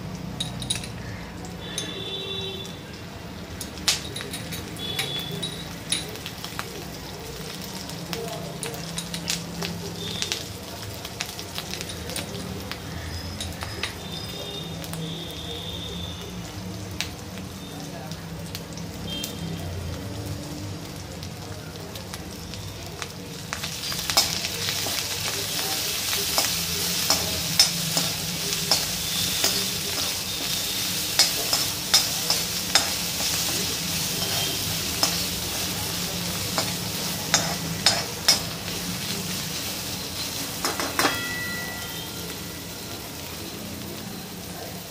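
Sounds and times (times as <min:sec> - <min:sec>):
food frying with a fizz: 0:04.7 - 0:44.9
spatula clicking against metal pan: 0:26.3 - 0:30.1, 0:31.2 - 0:33.4, 0:36.6 - 0:38.5.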